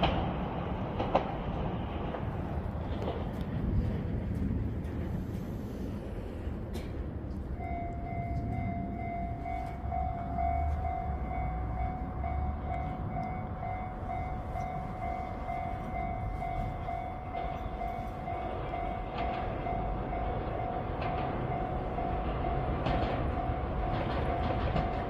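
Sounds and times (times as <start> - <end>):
electric train rumbling: 0.0 - 25.0
level crossing warning bell: 6.7 - 25.0.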